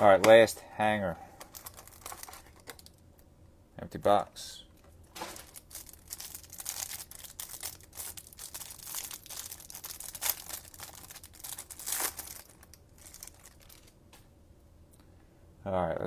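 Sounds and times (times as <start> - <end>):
plastic wrapper tearing and crinkling: 1.4 - 3.0, 5.2 - 14.0.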